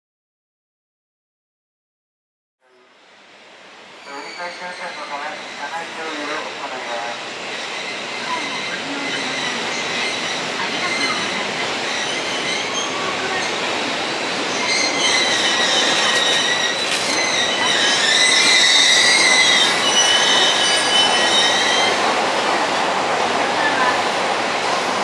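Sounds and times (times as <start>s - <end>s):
train running noise: 2.9s - 25.0s
high-pitched metallic brake squeal: 4.0s - 5.1s, 14.6s - 22.0s.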